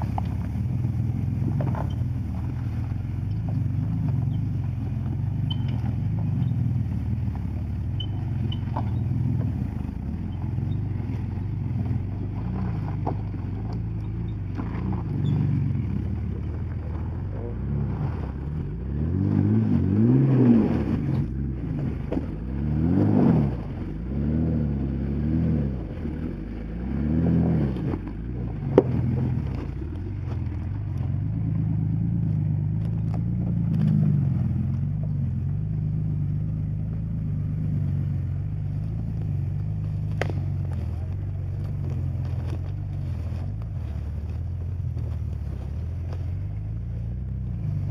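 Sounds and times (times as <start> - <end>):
engine revving under load: 0.0 - 47.9.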